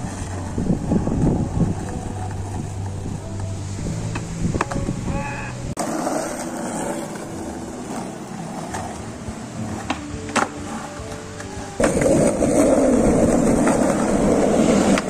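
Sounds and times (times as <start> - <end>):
skateboard clacking: 0.0 - 5.1, 5.8 - 15.0
skateboard wheels rolling on concrete: 0.0 - 15.0
short pitched call: 5.0 - 5.6.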